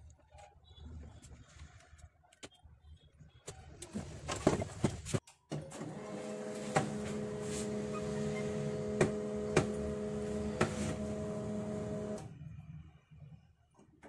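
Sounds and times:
printer motor running: 5.8s - 12.3s.

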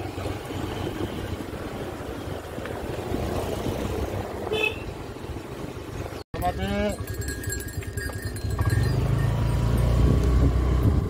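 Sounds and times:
motor scooter engine: 7.0s - 11.0s
wind noise on microphone: 7.4s - 11.0s.

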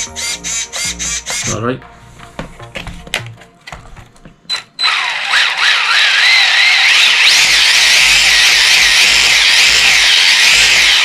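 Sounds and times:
electric motor whine: 4.8s - 11.0s.

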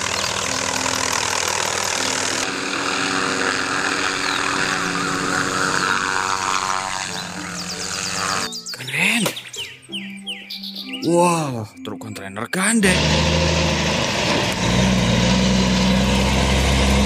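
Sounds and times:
helicopter engine and rotor: 0.0s - 8.5s.

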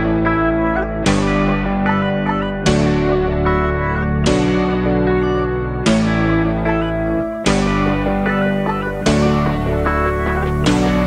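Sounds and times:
sustained music chords: 5.8s - 11.0s.

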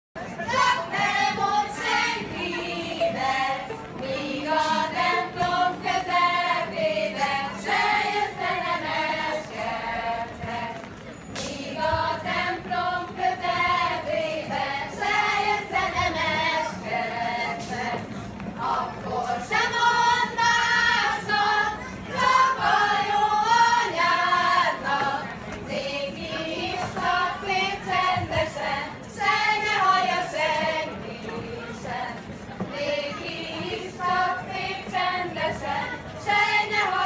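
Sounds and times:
group singing a folk song: 0.2s - 37.0s.

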